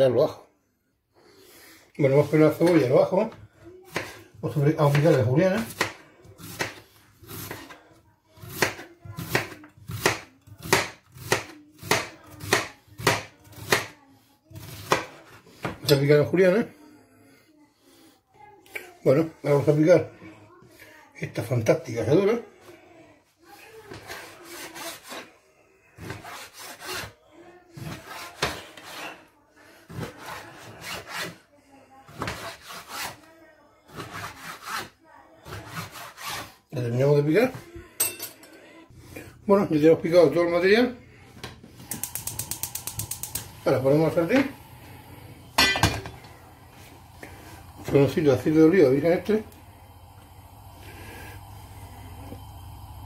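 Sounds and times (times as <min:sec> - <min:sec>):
knife slicing onion on board: 0:03.9 - 0:04.2, 0:04.8 - 0:07.8, 0:08.4 - 0:14.0, 0:14.6 - 0:15.8, 0:26.0 - 0:27.2, 0:27.8 - 0:29.2, 0:29.9 - 0:31.4, 0:32.1 - 0:33.2, 0:33.9 - 0:36.5
knife slicing meat on plastic board: 0:04.9 - 0:07.8.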